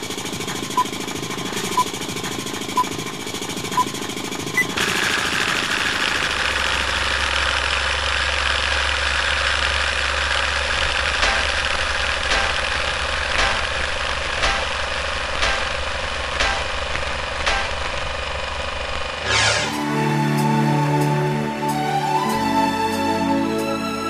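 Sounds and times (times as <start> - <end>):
film projector clatter: 0.0 - 19.2
low hum: 5.5 - 21.4.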